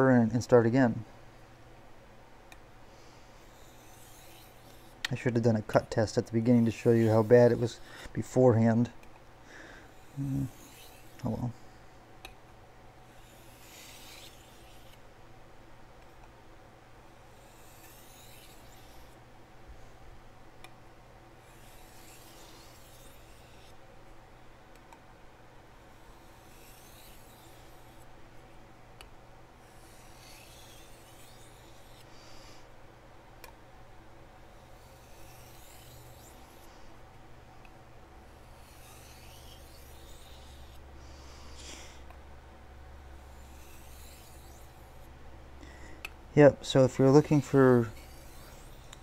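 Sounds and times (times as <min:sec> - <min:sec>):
knife on sharpening stone: 0:03.5 - 0:04.9, 0:09.9 - 0:11.2, 0:17.4 - 0:19.1, 0:26.3 - 0:28.0, 0:29.6 - 0:32.0, 0:34.8 - 0:36.6, 0:38.5 - 0:40.8, 0:43.2 - 0:44.9, 0:47.4 - 0:49.0.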